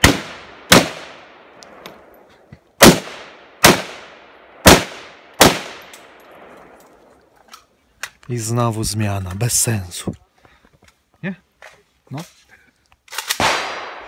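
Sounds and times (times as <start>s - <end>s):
gunshots with echo: 0.0s - 1.4s, 2.8s - 5.9s, 13.4s - 14.0s.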